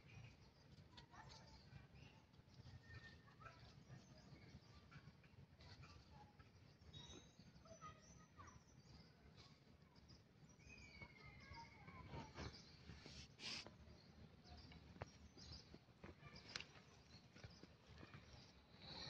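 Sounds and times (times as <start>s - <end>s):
birds chirping: 0.0s - 19.0s
brief hiss: 13.2s - 13.7s.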